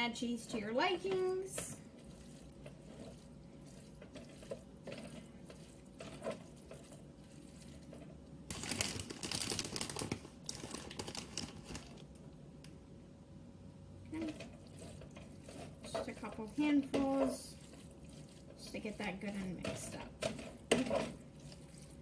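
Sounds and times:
spoon stirring thick mixture in pan: 0:00.0 - 0:09.1, 0:14.1 - 0:22.0.

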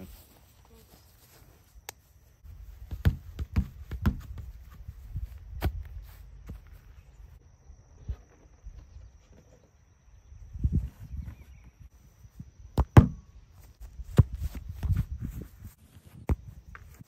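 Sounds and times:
ball thudding on plywood: 0:02.9 - 0:04.5, 0:12.8 - 0:13.2.

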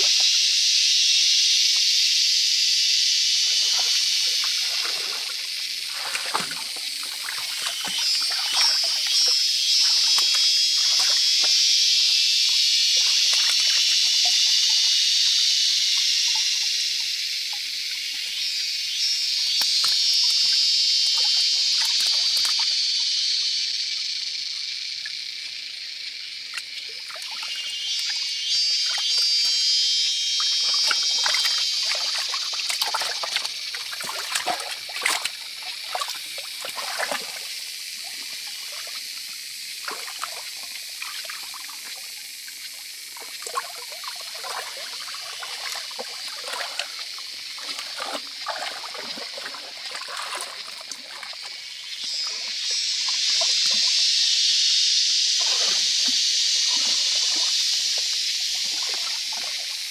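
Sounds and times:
high-pitched background hiss: 0:00.0 - 0:59.9
stream water trickling: 0:00.0 - 0:59.9
hands splashing in water: 0:03.6 - 0:11.5, 0:30.6 - 0:37.4, 0:43.3 - 0:51.5.

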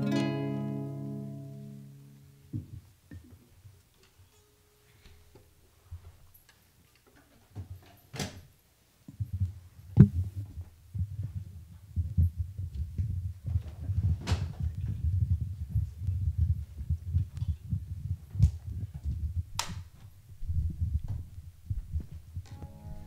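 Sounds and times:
microphone handling thumps: 0:02.5 - 0:03.3, 0:09.1 - 0:23.0.

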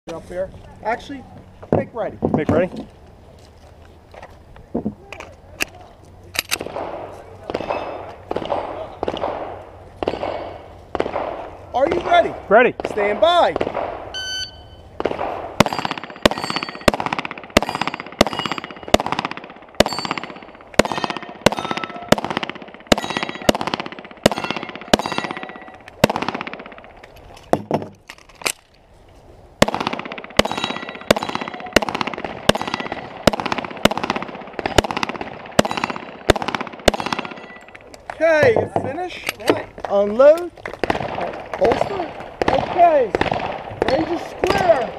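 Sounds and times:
steel plate clanging: 0:15.6 - 0:16.9, 0:23.0 - 0:23.6, 0:24.3 - 0:25.8, 0:30.4 - 0:31.8.

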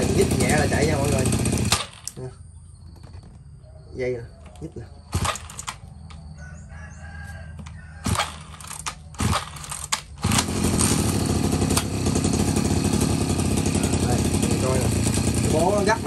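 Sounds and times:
pole saw engine idling and revving: 0:00.0 - 0:02.4, 0:05.1 - 0:06.2, 0:07.6 - 0:16.0
sharp clicks: 0:01.6 - 0:02.3, 0:04.4 - 0:06.3, 0:07.6 - 0:10.5.

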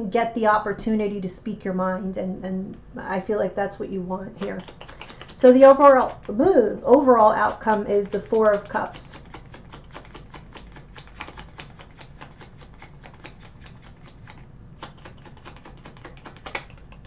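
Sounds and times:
cards being shuffled: 0:04.4 - 0:06.5, 0:07.1 - 0:17.0.

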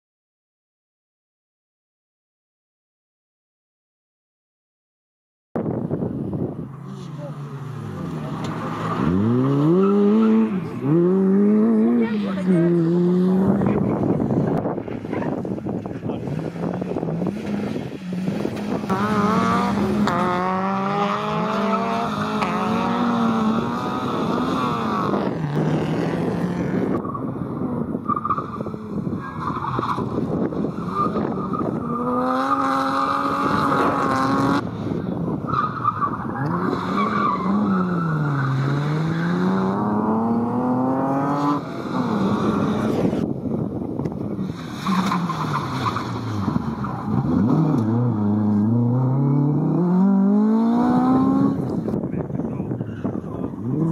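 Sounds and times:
rally car engines revving past: 0:05.8 - 0:53.9.

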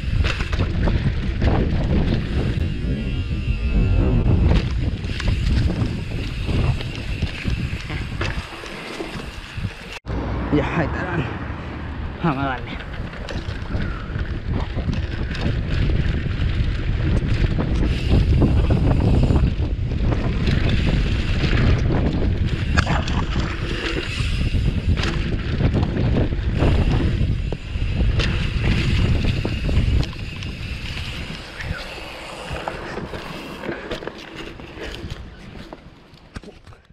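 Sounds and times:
bike knocks and rattles: 0:00.0 - 0:10.0, 0:12.7 - 0:31.6
bike tyres rumbling on dirt: 0:00.0 - 0:10.0, 0:12.5 - 0:36.8
wind buffeting microphone: 0:00.0 - 0:10.0, 0:11.4 - 0:36.0.

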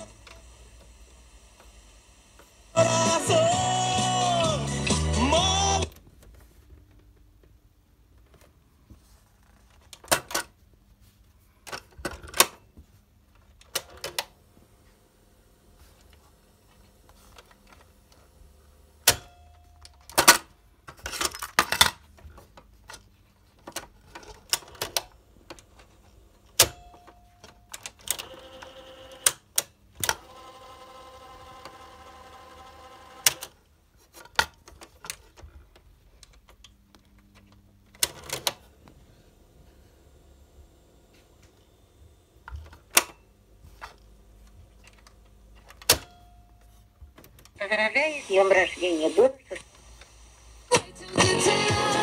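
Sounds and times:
cassette mechanism whirring: 0:00.0 - 0:06.1, 0:23.7 - 0:46.4.

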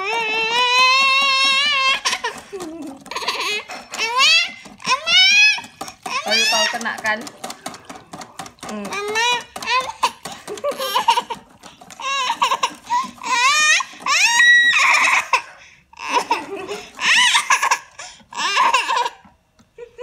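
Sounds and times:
child squealing and laughing: 0:00.0 - 0:06.7, 0:12.0 - 0:19.2.

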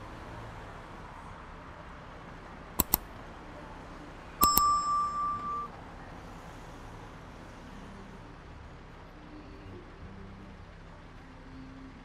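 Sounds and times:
bell clicks: 0:02.8 - 0:03.1, 0:04.4 - 0:05.8
small metal bell ding: 0:04.4 - 0:05.8.

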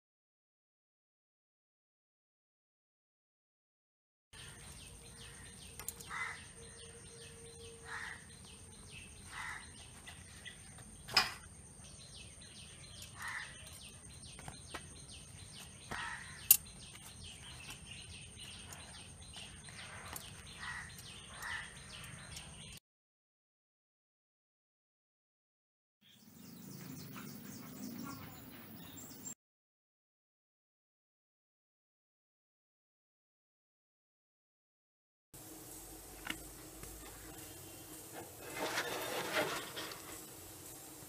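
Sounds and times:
birds chirping: 0:04.4 - 0:22.8, 0:26.0 - 0:29.4.

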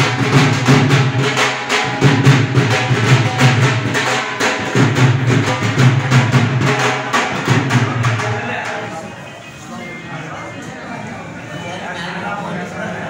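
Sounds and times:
loud music with drum beat: 0:00.0 - 0:08.9.

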